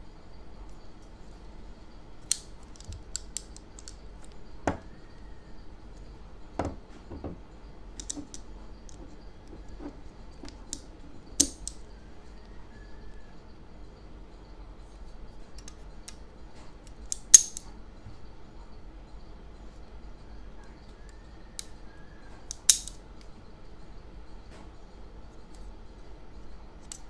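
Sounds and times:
louder knocks: 0:06.6 - 0:07.4
clicks and taps of handling: 0:08.0 - 0:11.8.

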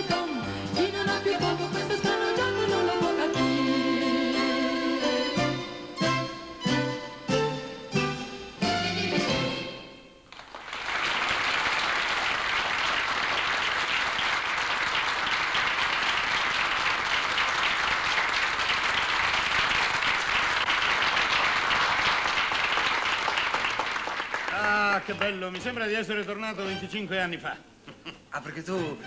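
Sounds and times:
audience applauding: 0:10.3 - 0:25.8.

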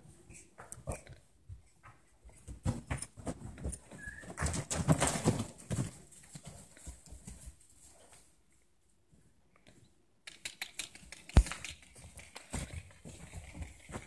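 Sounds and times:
horses trotting on soft dirt: 0:01.4 - 0:08.3, 0:11.0 - 0:14.0.

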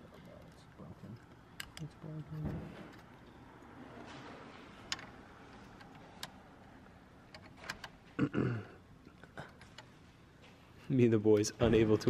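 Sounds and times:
person grunting: 0:08.2 - 0:08.8.

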